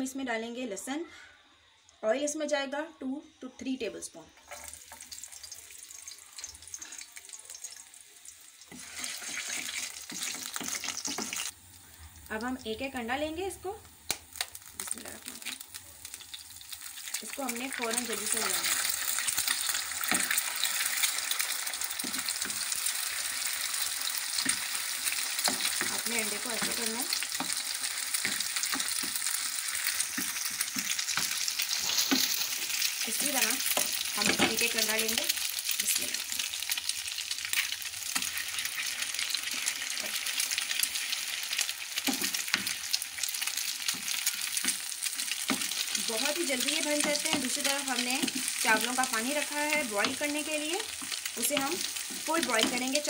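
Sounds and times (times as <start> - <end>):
egg sizzling in oil: 4.4 - 53.0
wooden spatula strokes: 8.7 - 10.2.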